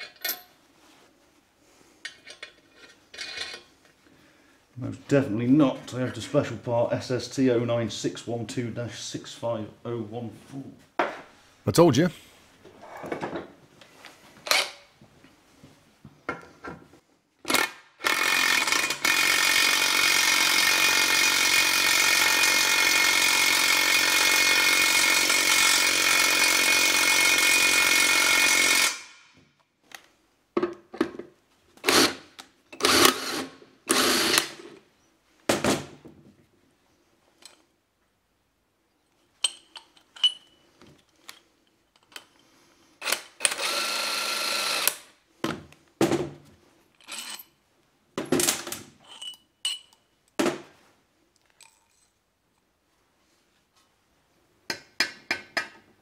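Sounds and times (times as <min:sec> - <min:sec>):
power wrench running: 0:17.5 - 0:29.2, 0:31.8 - 0:32.2, 0:32.8 - 0:34.6, 0:43.0 - 0:45.1, 0:47.0 - 0:47.4
steel tools clinking on casing: 0:39.4 - 0:40.6, 0:49.0 - 0:50.1.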